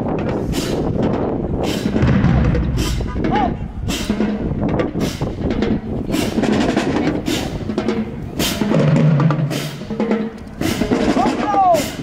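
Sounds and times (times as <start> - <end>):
marching drumline playing: 0.1 - 12.0.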